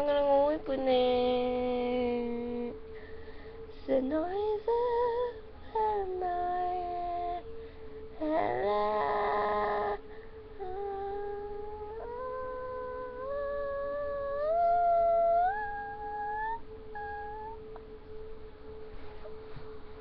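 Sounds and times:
steady tone: 1.2 - 20.0
woman's wordless howling notes: 3.8 - 19.5.

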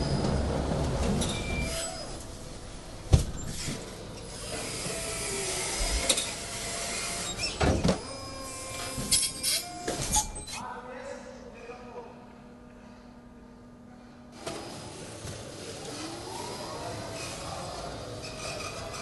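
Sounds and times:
forklift mechanical hum: 0.0 - 10.6.

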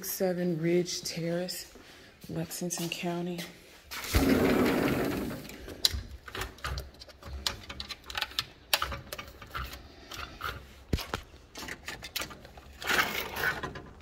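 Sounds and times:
sliding glass door opening: 4.0 - 6.3
blinds rattling: 4.0 - 9.7.

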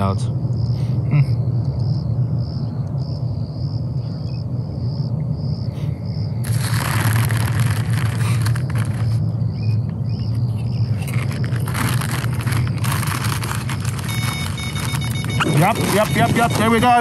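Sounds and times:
steady low rumble: 0.0 - 17.0
crisp packet crinkling: 6.4 - 9.2, 10.7 - 17.0
bite alarm rapid high beeps: 14.0 - 17.0.

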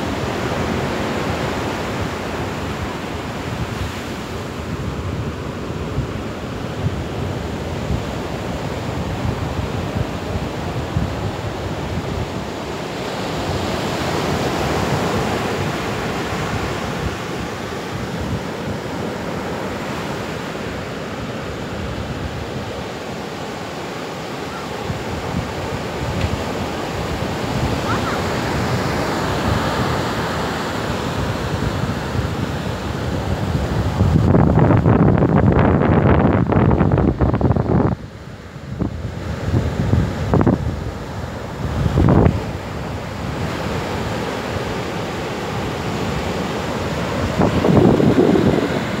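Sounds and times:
ocean surf breaking: 0.0 - 34.5, 36.4 - 49.0
wind buffeting microphone: 24.2 - 49.0.

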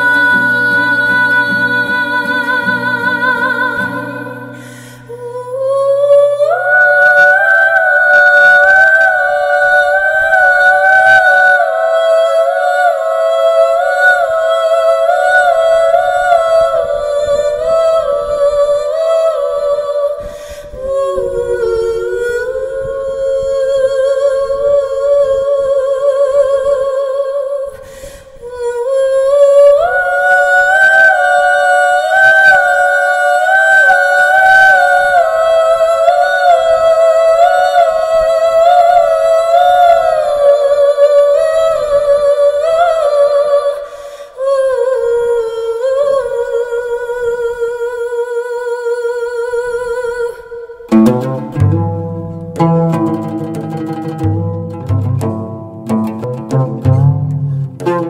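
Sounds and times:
woman humming with vibrato: 16.4 - 26.3.

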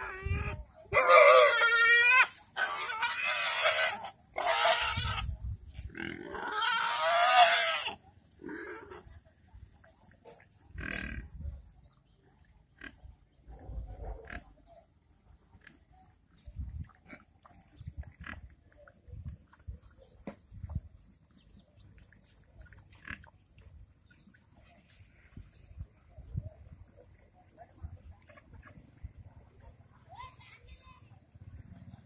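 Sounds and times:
young pigs squealing: 0.0 - 9.2
pigs grunting: 0.0 - 9.3, 10.6 - 11.5, 12.7 - 14.8, 17.0 - 19.0, 22.6 - 23.4.

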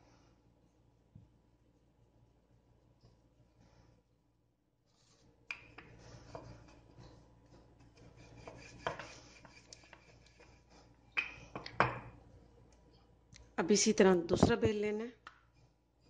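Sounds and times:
rolling pin rubbing on dough: 4.9 - 11.1.

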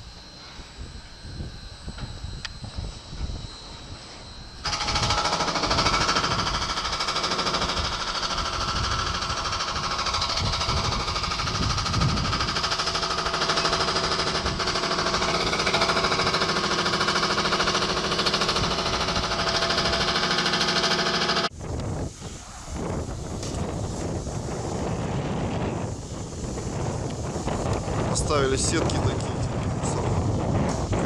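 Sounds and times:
breaker hammer pounding masonry: 4.7 - 21.5.

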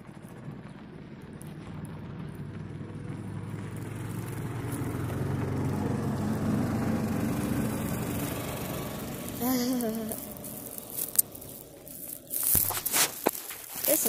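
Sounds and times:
utility vehicle engine driving up: 0.0 - 14.0.

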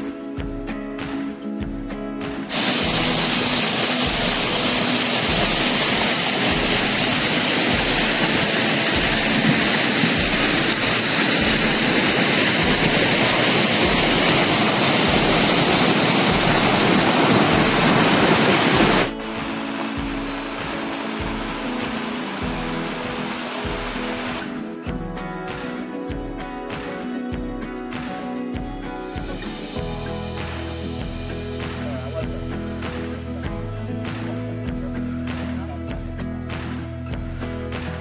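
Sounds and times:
acoustic guitar music: 0.0 - 38.0
waterfall cascading over rock: 2.5 - 24.6.

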